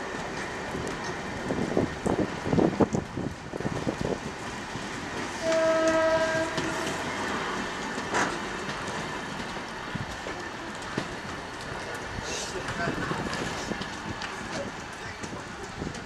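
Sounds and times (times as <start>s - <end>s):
train rolling rumble: 0.0s - 16.0s
train wheels clacking over rail joints: 0.0s - 16.0s
train horn blast: 5.4s - 7.2s.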